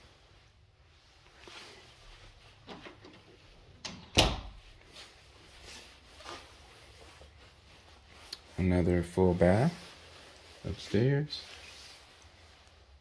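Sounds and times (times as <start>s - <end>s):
faint knocks and rustles: 1.1s - 8.7s
door closing with a thump: 3.9s - 4.6s.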